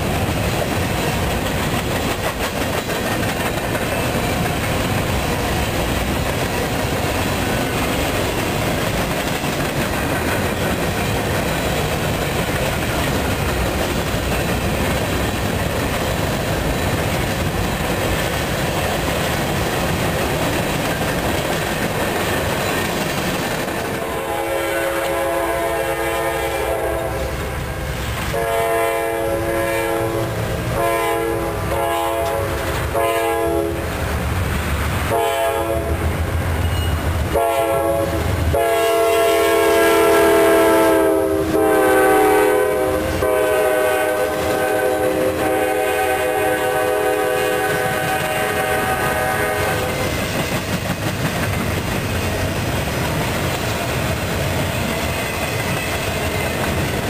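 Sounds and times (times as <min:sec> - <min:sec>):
train wheels clattering on rails: 0:00.0 - 0:57.0
locomotive horn blasts: 0:23.9 - 0:33.9, 0:35.1 - 0:36.1, 0:37.3 - 0:50.0.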